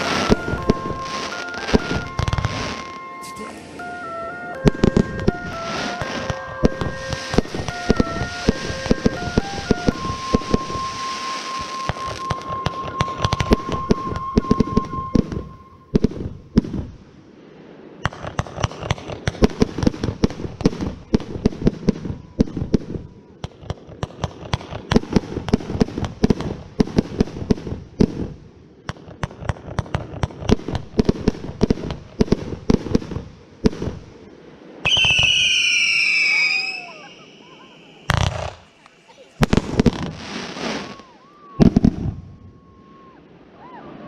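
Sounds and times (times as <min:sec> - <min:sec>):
steady high tone: 0:00.0 - 0:16.0
fireworks crackling: 0:00.0 - 0:44.0.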